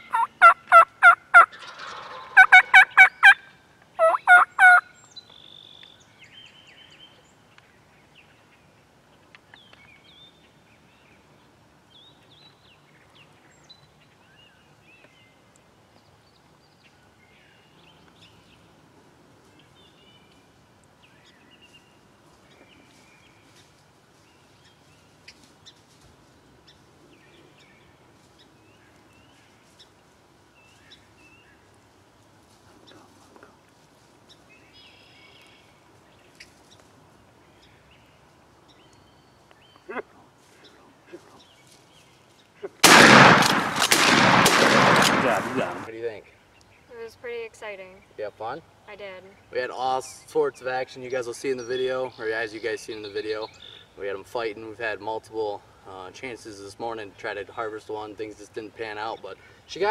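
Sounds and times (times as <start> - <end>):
turkey gobbling: 0.0 - 4.9
songbirds chirping: 0.0 - 59.9.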